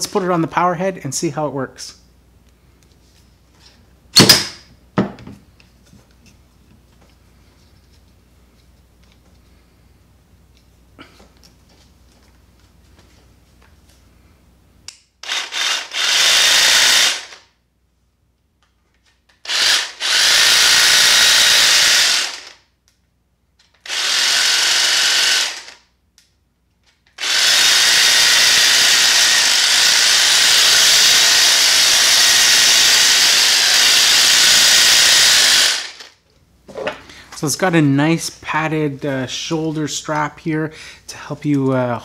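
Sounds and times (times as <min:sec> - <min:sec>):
hedge trimmer running: 0:15.2 - 0:17.4, 0:19.4 - 0:22.6, 0:23.8 - 0:25.8, 0:27.1 - 0:36.2.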